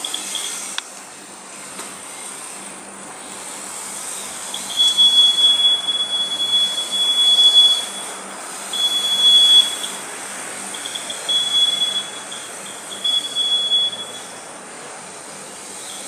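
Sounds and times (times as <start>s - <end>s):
warning buzzer beeps: 4.5s - 10.0s, 10.7s - 14.5s.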